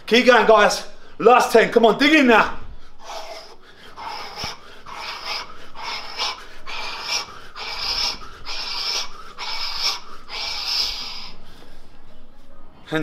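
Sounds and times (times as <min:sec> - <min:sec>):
man breathing hard: 0:02.6 - 0:12.1.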